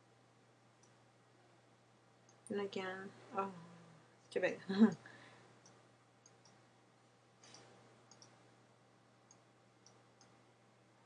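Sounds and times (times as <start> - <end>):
low steady hum: 0.0 - 11.0
computer mouse clicks: 5.6 - 6.6, 7.4 - 8.4, 9.3 - 10.4.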